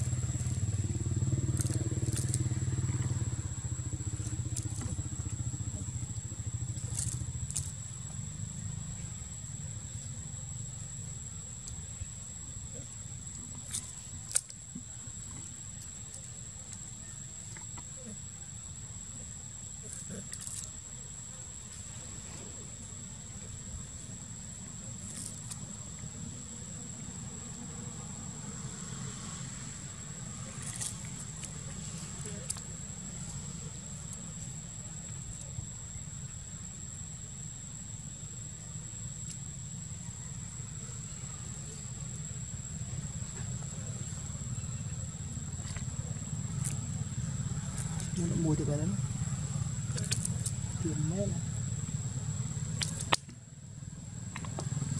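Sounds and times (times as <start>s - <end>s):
high-pitched insect drone: 0.0s - 14.6s
sharp snap: 52.8s - 53.4s
sugar cane cracking: 52.8s - 53.4s.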